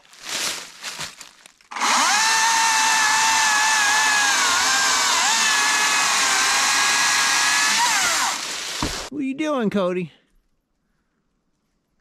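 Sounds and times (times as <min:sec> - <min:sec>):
electric chainsaw cutting log: 0:01.7 - 0:09.1.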